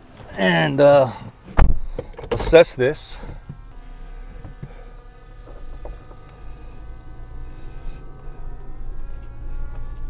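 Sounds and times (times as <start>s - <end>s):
engine and road noise in cabin: 0.0s - 10.0s
small clicks: 5.4s - 10.0s.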